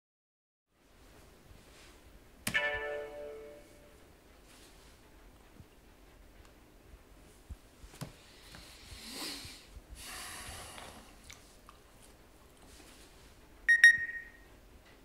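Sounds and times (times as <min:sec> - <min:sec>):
man sniffing and snorting: 0:08.3 - 0:11.2
short electronic beep: 0:13.7 - 0:14.4.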